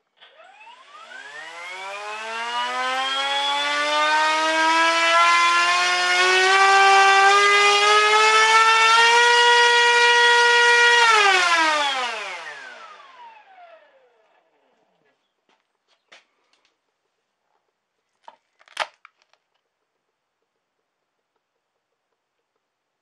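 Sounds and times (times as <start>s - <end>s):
electric motor propeller whine: 0.1s - 14.5s.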